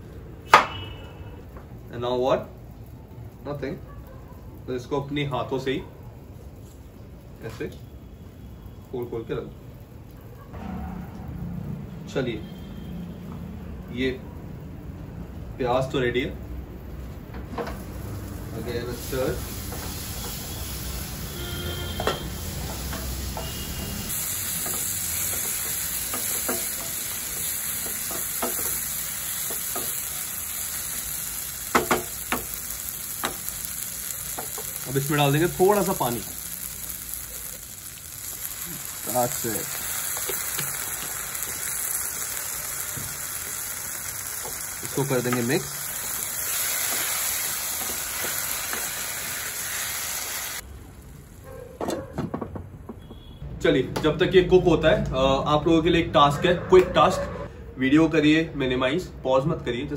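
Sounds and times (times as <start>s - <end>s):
onions sizzling in a pan: 17.6s - 51.4s.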